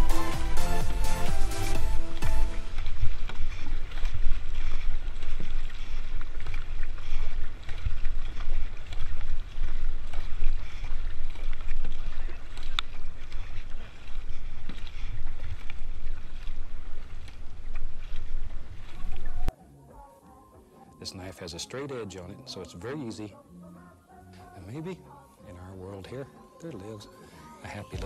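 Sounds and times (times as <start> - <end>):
paddle strokes splashing water: 0.0 - 19.5.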